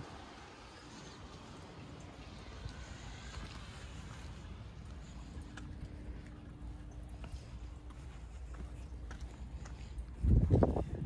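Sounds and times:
low outdoor rumble: 0.0 - 11.0
faint footsteps on pavement: 0.6 - 11.0.

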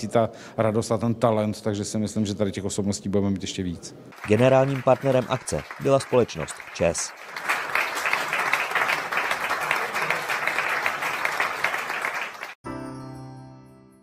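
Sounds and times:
audience applauding: 4.2 - 12.6.

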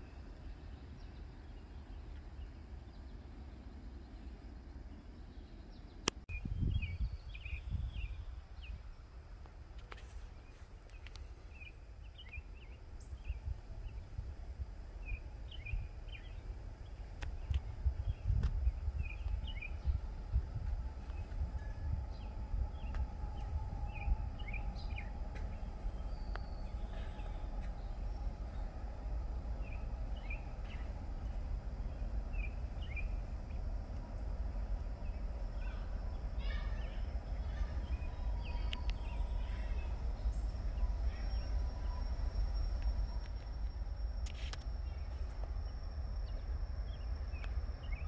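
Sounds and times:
low rumble: 10.4 - 48.0
birds chirping: 21.0 - 33.7, 34.7 - 43.2.

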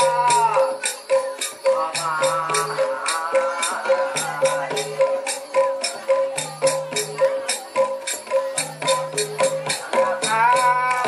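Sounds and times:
gamelan music: 0.0 - 11.0
rattling jingle: 0.0 - 11.0.

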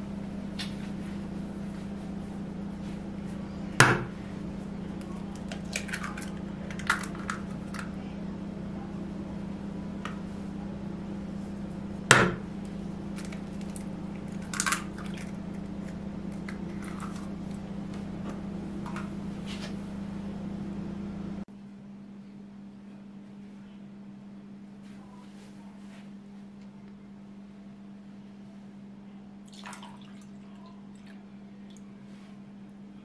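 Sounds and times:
low hum: 0.0 - 22.4
eggshell clicks and crackles: 5.0 - 8.0, 12.6 - 19.1
egg cracking on glass bowl: 13.1 - 17.6.

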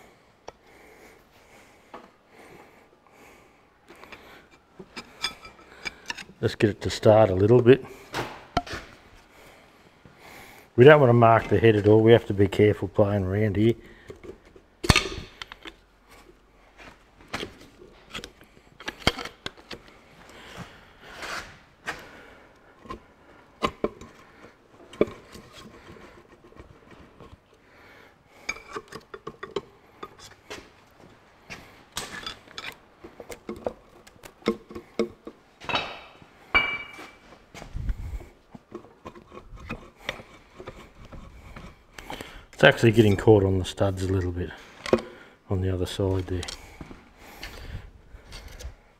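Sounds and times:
metal knocks and clinks: 34.4 - 37.3.

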